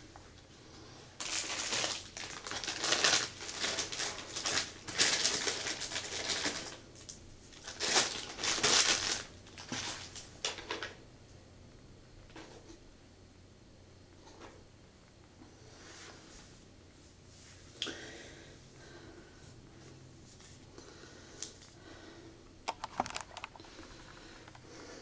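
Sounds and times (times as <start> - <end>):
packaging crinkling: 1.2 - 10.9, 22.7 - 24.6.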